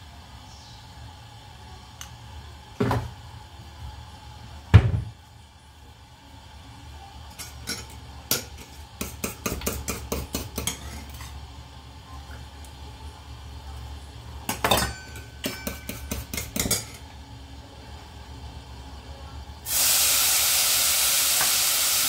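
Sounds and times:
steel dishes clinking: 14.5 - 17.0.

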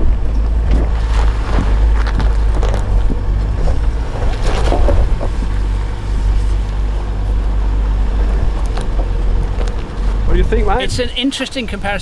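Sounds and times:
low engine rumble: 0.0 - 12.0
tyres knocking and crunching: 0.1 - 6.0, 8.2 - 10.3.

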